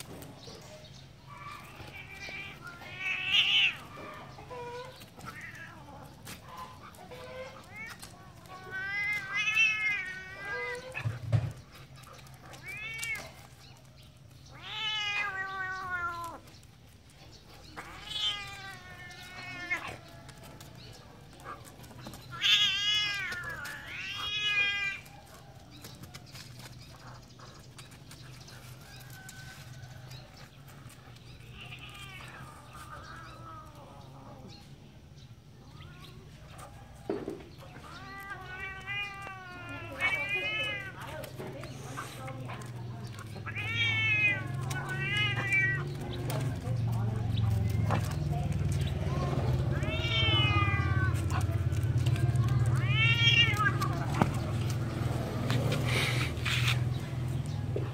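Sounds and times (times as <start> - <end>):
cat yowling: 14.5 - 16.5, 17.8 - 20.1, 22.3 - 25.1, 37.7 - 41.0, 43.3 - 46.0, 49.6 - 54.2.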